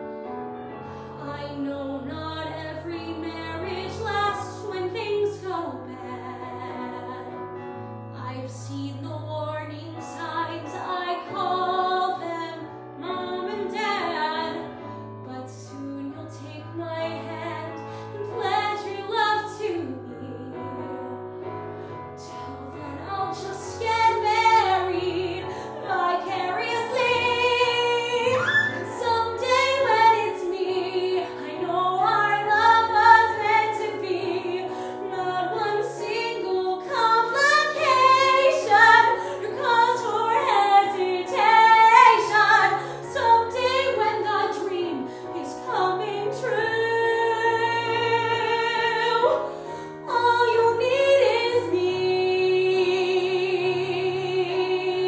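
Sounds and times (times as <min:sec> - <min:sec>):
woman singing: 0:01.2 - 0:07.4, 0:08.2 - 0:21.2, 0:22.2 - 0:55.0
recorded accompaniment: 0:20.5 - 0:55.0.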